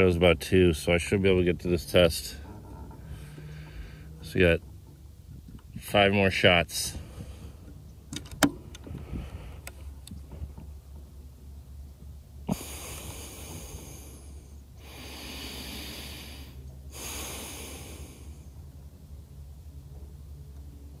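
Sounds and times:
long breathy hisses: 12.5 - 18.5.

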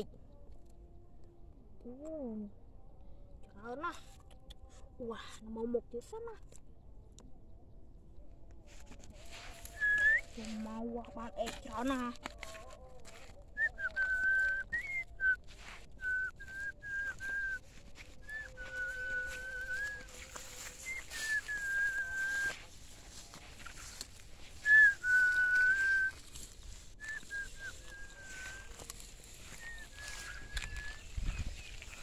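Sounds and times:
person whistling held notes: 9.4 - 10.9, 13.5 - 22.8, 24.5 - 32.0.

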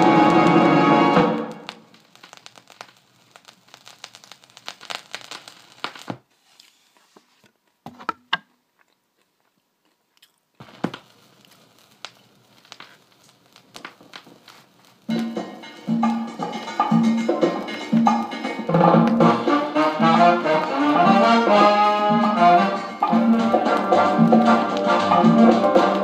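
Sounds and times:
music from record: 0.0 - 2.7, 13.2 - 26.0
vinyl record crackle and clicks: 0.0 - 26.0.

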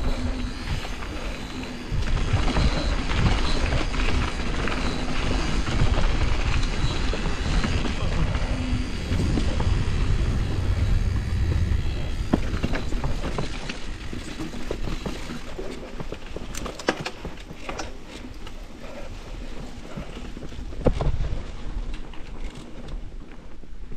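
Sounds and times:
wind buffeting microphone: 0.0 - 16.6
bike tyre rumble: 0.0 - 23.9
bike knocks and rattles: 11.5 - 18.5, 20.0 - 23.5.

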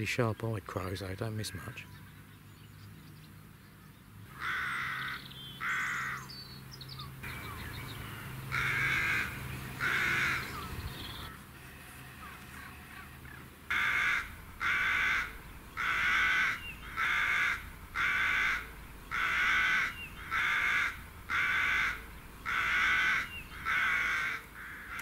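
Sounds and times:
crow cawing: 4.3 - 6.3, 8.5 - 10.7, 12.2 - 25.0.

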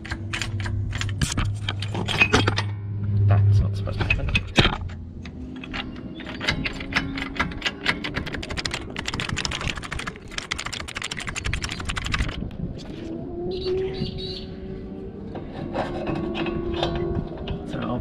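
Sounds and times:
socket ratchet clicking rapidly: 5.6 - 12.4.

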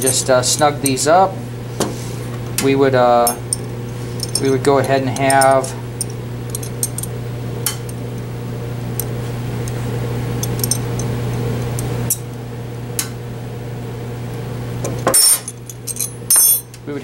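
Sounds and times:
wrench clinking on steel nuts: 0.0 - 1.0, 3.2 - 7.1, 15.1 - 16.8
low background hum: 0.0 - 17.0.

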